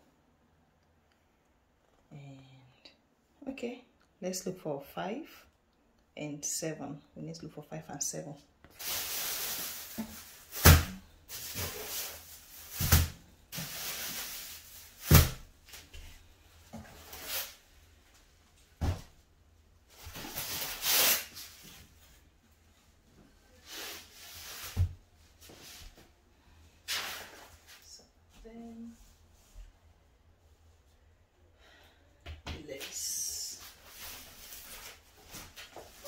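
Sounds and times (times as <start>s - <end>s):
plastic wrap rustling: 8.7s - 15.9s.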